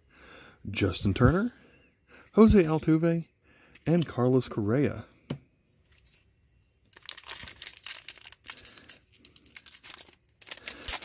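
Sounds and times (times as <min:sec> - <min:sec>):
plastic wrapper crinkling: 0:06.8 - 0:11.0.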